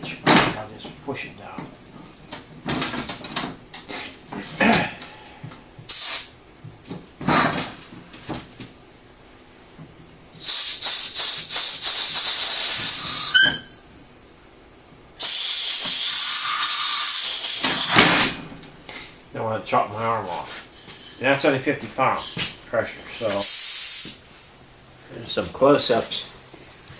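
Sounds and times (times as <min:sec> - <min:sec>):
pressurised air hissing: 0:05.9 - 0:06.4, 0:10.4 - 0:13.8, 0:15.2 - 0:18.2, 0:22.1 - 0:24.3
short rising squeak: 0:12.6 - 0:13.8, 0:20.7 - 0:21.2.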